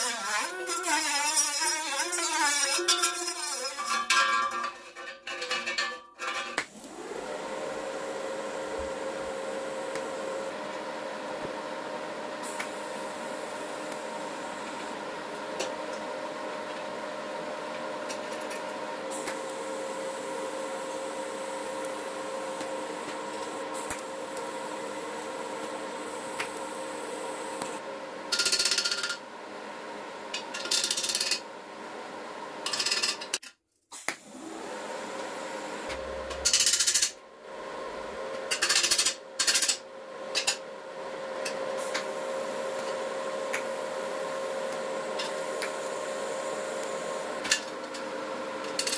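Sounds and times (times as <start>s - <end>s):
tool scraping: 0.0s - 6.7s
steady hum: 35.2s - 38.6s.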